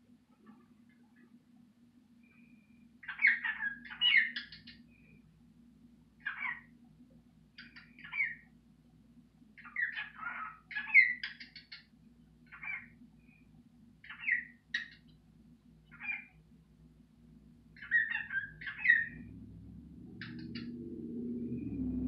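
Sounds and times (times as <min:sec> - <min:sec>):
cockatiel chirping: 0:03.0 - 0:04.8, 0:06.2 - 0:06.7, 0:07.6 - 0:08.4, 0:09.6 - 0:11.8, 0:12.5 - 0:12.9, 0:14.0 - 0:15.1, 0:15.9 - 0:16.3, 0:17.8 - 0:19.2, 0:20.2 - 0:20.7.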